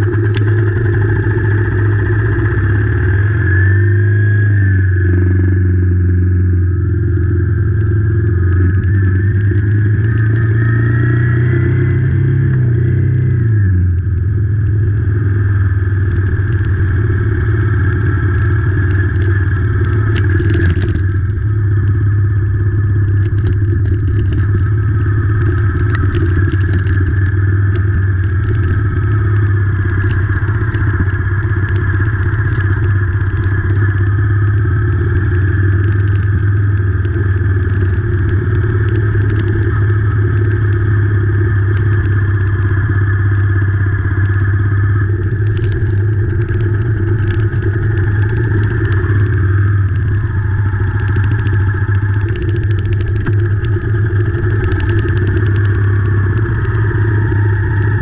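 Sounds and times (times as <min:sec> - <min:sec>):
motorcycle engine running: 0:00.0 - 0:58.0
rain ticking on camera: 0:30.0 - 0:34.0, 0:45.0 - 0:55.7.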